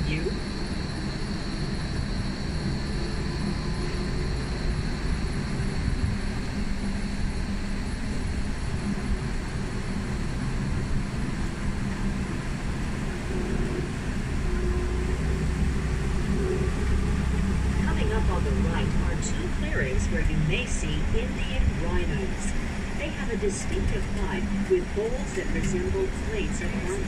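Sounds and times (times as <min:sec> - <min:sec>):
tram rumbling: 0:00.0 - 0:27.0.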